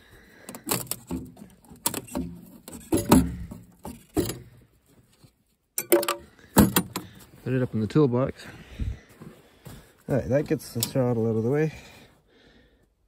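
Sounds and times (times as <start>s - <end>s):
metal toolbox clunk: 0.5s - 4.6s, 5.8s - 7.2s
footsteps crunching in snow: 7.3s - 10.6s.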